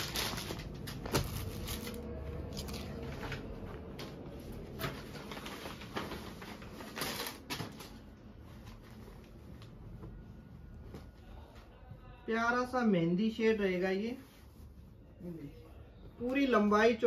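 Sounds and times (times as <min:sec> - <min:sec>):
fabric and plastic rustling: 0:00.0 - 0:17.0.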